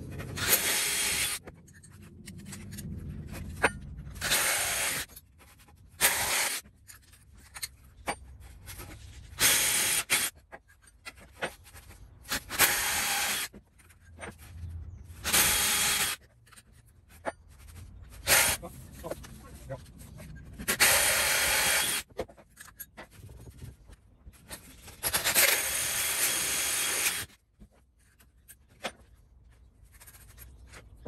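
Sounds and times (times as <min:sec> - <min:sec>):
hole saw cutting through wood: 0:00.3 - 0:01.4, 0:04.2 - 0:05.1, 0:09.4 - 0:10.3, 0:15.2 - 0:16.2, 0:18.2 - 0:18.7, 0:20.7 - 0:22.1, 0:25.2 - 0:27.3.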